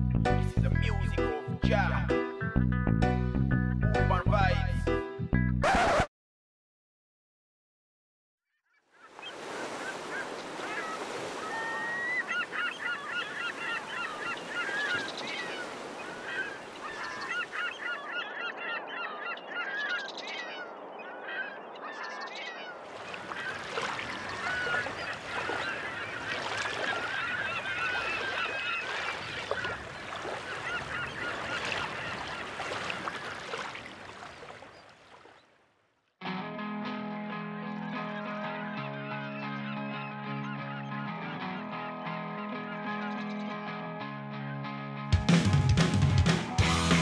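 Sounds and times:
water birds calling: 8.5 - 36.1, 37.6 - 43.8.

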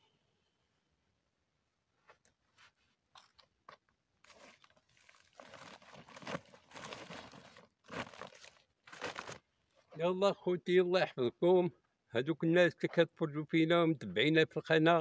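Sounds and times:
sacks rustling and crinkling: 4.2 - 10.1.

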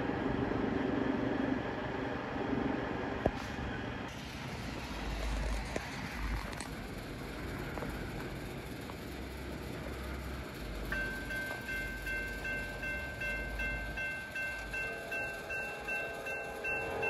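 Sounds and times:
steady low rumble: 0.0 - 17.0
crossing warning bell dinging: 7.2 - 17.0.

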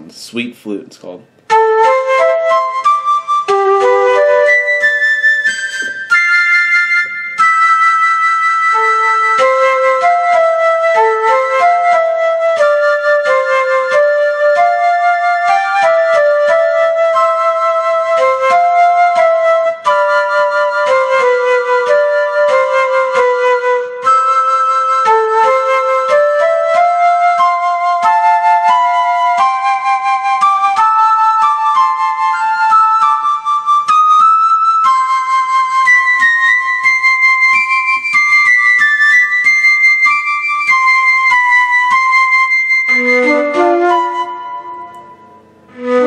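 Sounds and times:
digital piano flute melody: 1.4 - 46.0.

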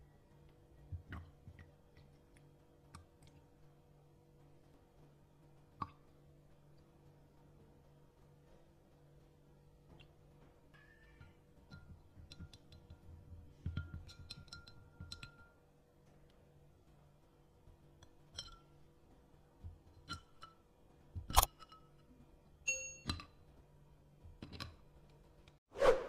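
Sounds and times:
stick clinking against glass: 22.7 - 23.3.

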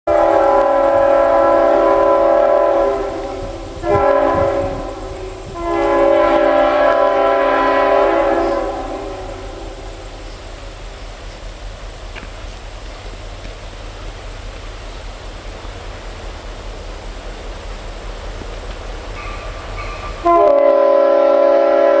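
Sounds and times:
locomotive air horn chord: 0.1 - 10.2, 19.2 - 22.0.

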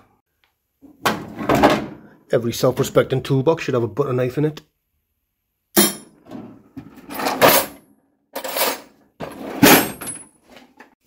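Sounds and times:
steel tools clattering: 5.8 - 7.8, 8.4 - 10.3
metal drawers sliding: 6.2 - 7.8, 8.4 - 10.8.

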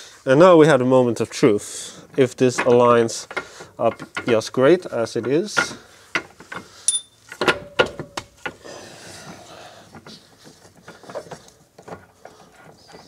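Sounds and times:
metal arm knocking and scraping: 2.2 - 8.6.

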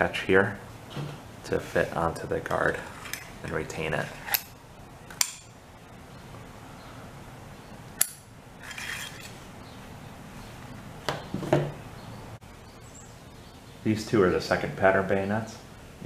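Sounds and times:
sharp metal clicks: 8.0 - 8.3
bayonet scraping in scabbard: 8.6 - 9.4.

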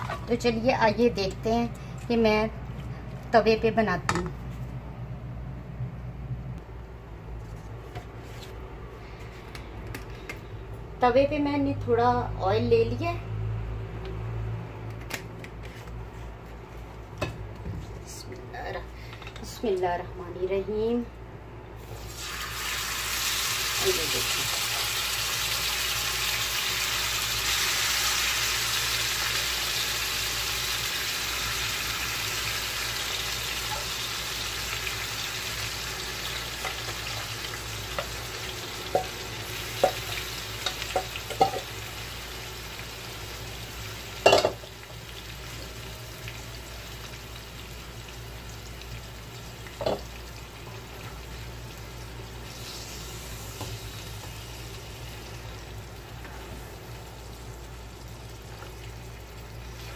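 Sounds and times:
food sizzling in hot oil: 21.8 - 59.9.

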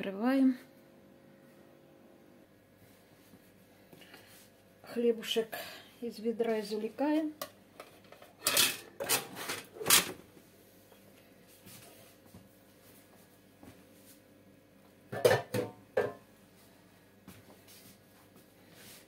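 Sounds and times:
metal bread pan knocking: 15.2 - 16.2.

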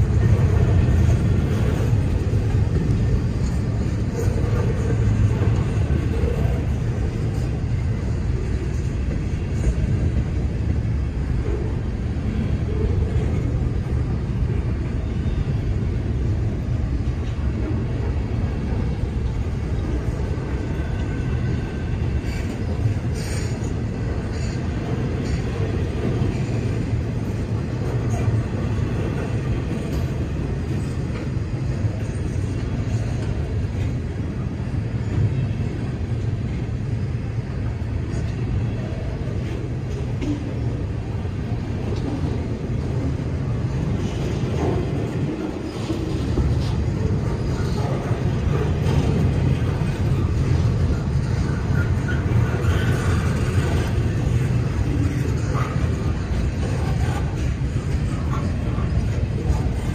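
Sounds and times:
freight train wheels rumbling on rail: 0.0 - 59.9.

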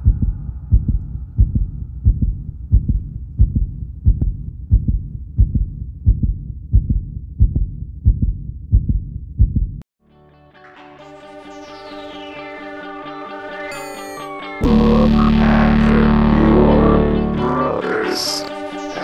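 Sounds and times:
heartbeat double thump: 0.0 - 9.8.

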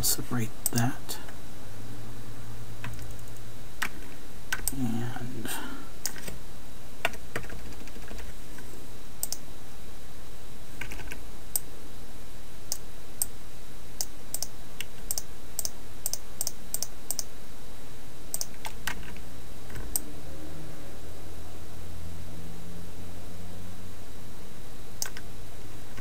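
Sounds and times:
steady low hum: 0.0 - 26.0
computer keys clicking: 0.6 - 0.9, 2.8 - 4.8, 7.0 - 8.3, 9.2 - 9.4, 10.8 - 11.7, 14.0 - 17.3, 18.3 - 20.0, 25.0 - 25.3.

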